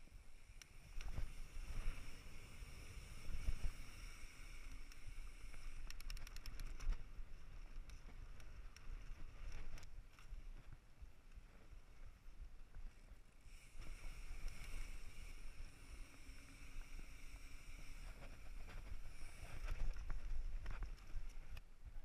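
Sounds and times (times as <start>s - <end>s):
bike tyre noise on dirt: 0.0s - 22.0s.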